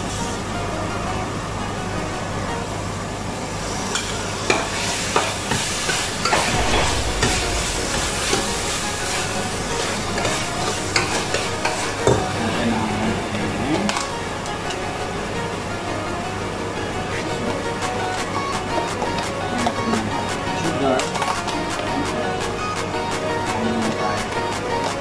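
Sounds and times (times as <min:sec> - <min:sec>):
vegetables sizzling in a pan: 0:03.8 - 0:06.5.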